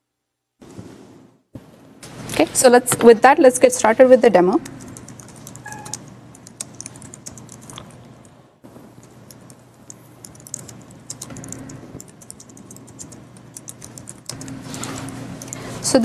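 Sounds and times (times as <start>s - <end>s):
faint room hum: 0.0s - 16.0s
laptop keyboard typing: 4.6s - 8.0s, 9.0s - 15.6s.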